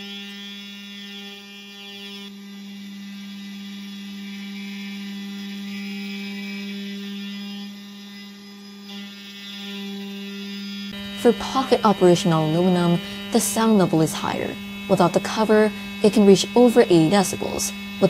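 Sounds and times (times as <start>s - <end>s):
cnc spindle milling aluminum: 10.9s - 18.0s.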